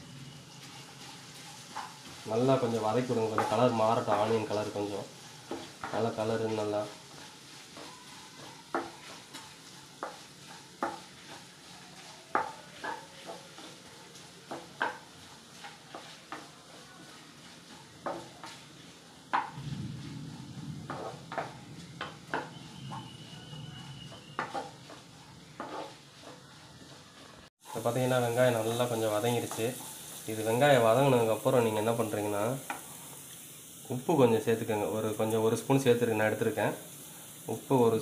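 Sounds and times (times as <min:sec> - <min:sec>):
onions sizzling in oil: 0:00.0 - 0:38.0
spatula scraping pan: 0:00.2 - 0:33.0
low rumble: 0:19.6 - 0:22.0.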